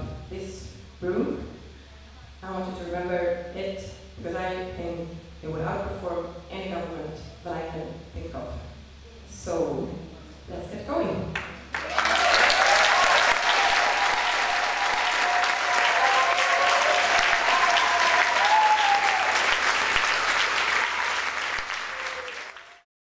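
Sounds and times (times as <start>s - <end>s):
audience applauding: 11.4s - 22.9s
people cheering: 11.7s - 22.8s.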